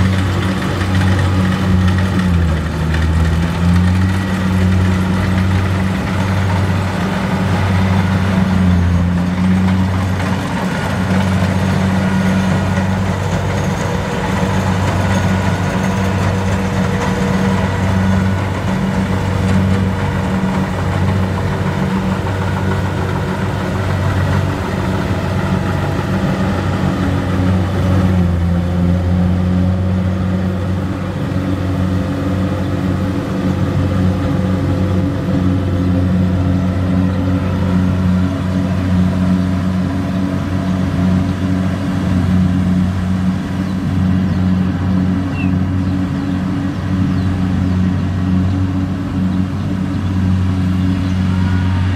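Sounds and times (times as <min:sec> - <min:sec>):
combine harvester engine droning: 0:00.0 - 0:51.9.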